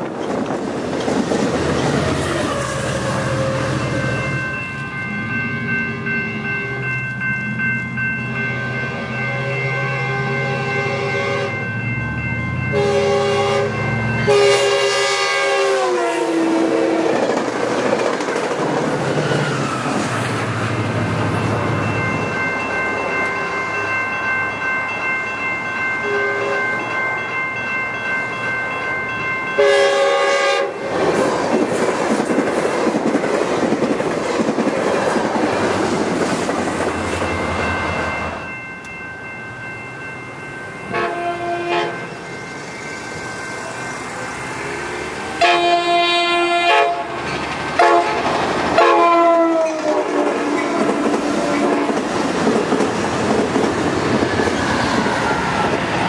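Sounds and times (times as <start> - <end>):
crossing warning bells ringing: 0.0 - 56.0
passing train wheel clatter: 0.0 - 56.0
train horn blasts: 8.6 - 11.7, 12.7 - 17.2, 26.0 - 26.7, 29.6 - 30.9, 40.9 - 42.1, 45.3 - 47.2, 47.8 - 52.0.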